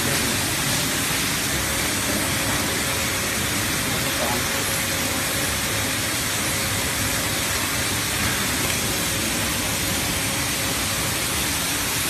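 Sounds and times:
machine hiss and rumble: 0:00.0 - 0:12.0.

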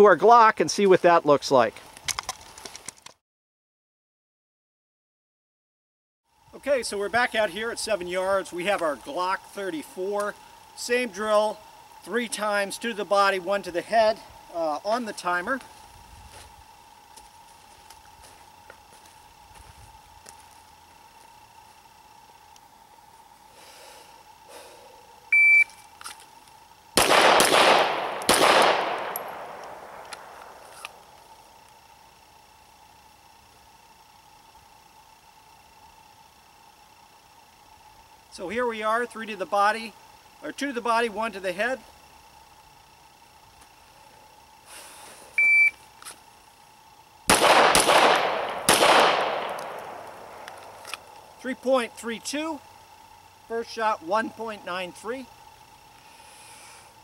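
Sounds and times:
shot timer beep: 0:25.3 - 0:25.8, 0:45.4 - 0:45.8
pistol shots echoing: 0:27.0 - 0:30.4, 0:47.3 - 0:50.1.

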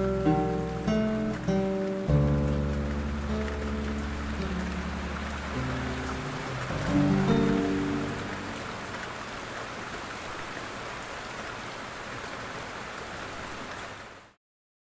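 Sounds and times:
held music notes: 0:00.0 - 0:09.1
steady rain patter: 0:00.0 - 0:14.4.

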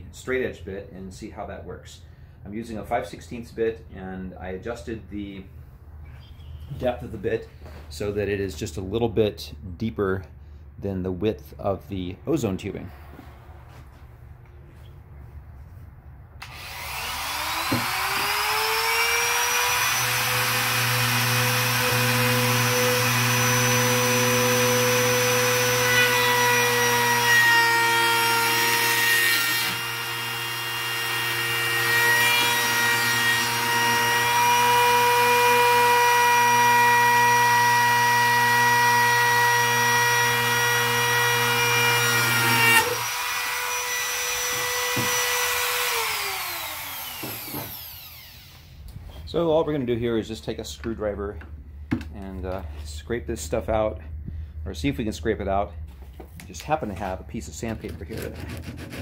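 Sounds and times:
router whining cutting plastic: 0:16.4 - 0:48.8
router winding down: 0:16.4 - 0:48.8.

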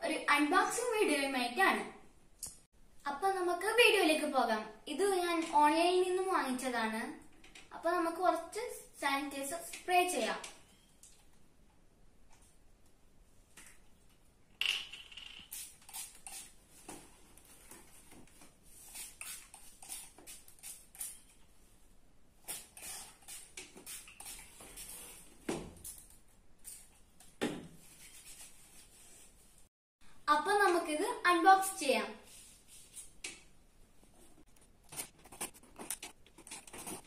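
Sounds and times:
spray bottle spritzing: 0:15.2 - 0:16.6, 0:18.8 - 0:21.3, 0:22.4 - 0:25.2.

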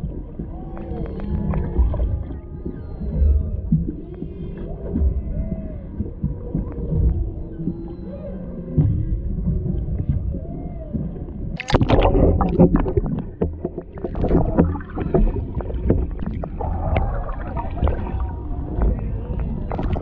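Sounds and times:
water sloshing and crackling: 0:00.0 - 0:20.0
whale song moans: 0:00.0 - 0:20.0.

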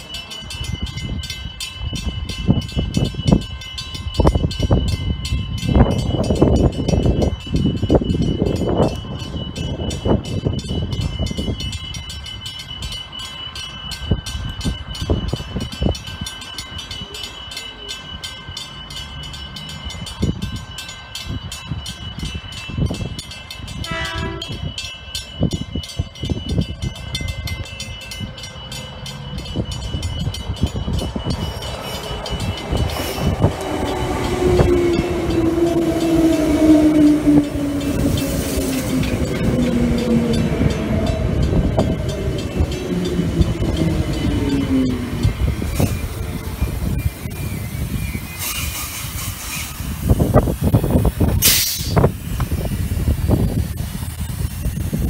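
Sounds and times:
passing train rumble: 0:00.0 - 0:55.0
train horn: 0:23.8 - 0:24.8.

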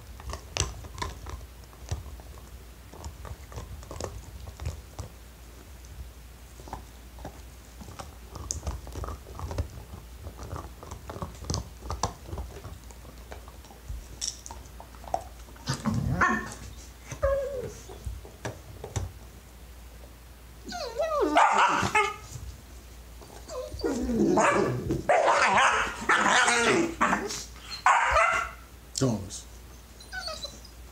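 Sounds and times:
puppies chewing and scuffling: 0:00.0 - 0:25.1
puppies barking and yipping: 0:20.7 - 0:22.2, 0:23.4 - 0:28.6.

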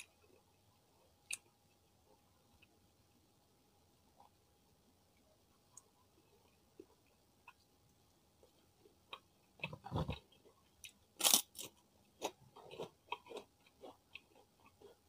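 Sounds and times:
cracker crunching while chewed: 0:09.1 - 0:15.0.

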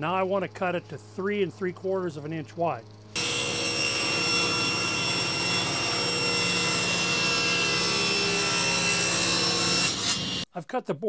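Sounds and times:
table saw whine: 0:03.2 - 0:10.4
saw cutting wood: 0:03.2 - 0:10.5.

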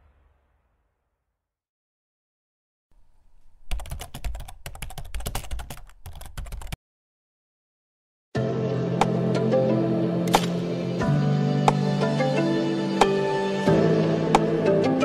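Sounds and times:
keyboard typing clicks: 0:03.4 - 0:06.8
music: 0:08.4 - 0:15.0.

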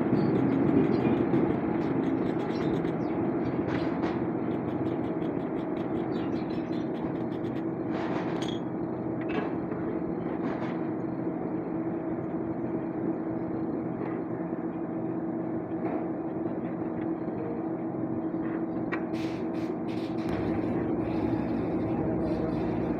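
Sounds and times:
steady mechanical hum: 0:00.0 - 0:22.9.

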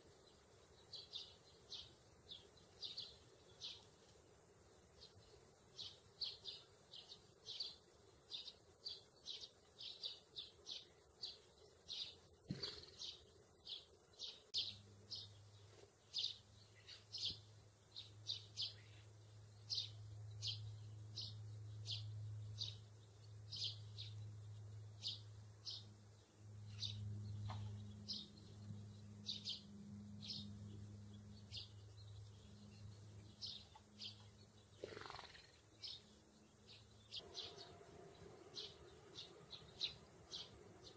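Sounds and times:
sparrows chirping: 0:00.0 - 0:40.9
low steady hum: 0:13.1 - 0:34.8, 0:35.5 - 0:40.9.

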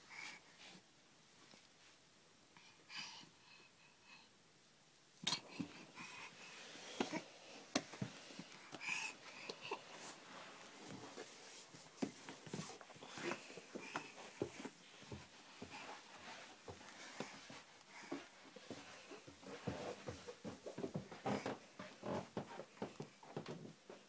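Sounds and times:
baby breathing: 0:05.3 - 0:19.2
baby crawling on floor: 0:05.3 - 0:21.6.

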